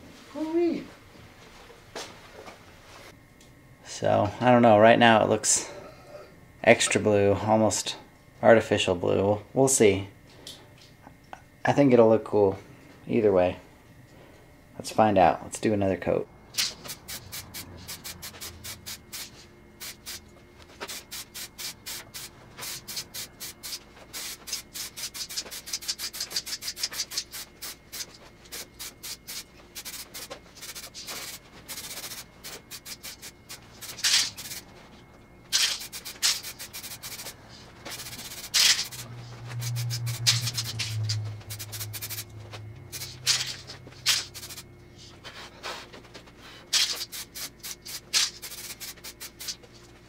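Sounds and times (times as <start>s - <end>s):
spray can rattling when shaken: 16.6s - 20.2s, 20.8s - 34.6s, 35.5s - 42.3s, 42.9s - 44.6s, 46.7s - 49.7s.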